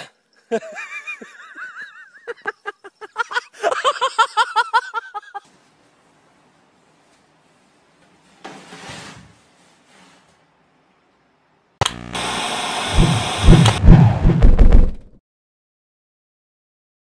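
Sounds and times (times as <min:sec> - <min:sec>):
person laughing hard: 0:00.5 - 0:05.4.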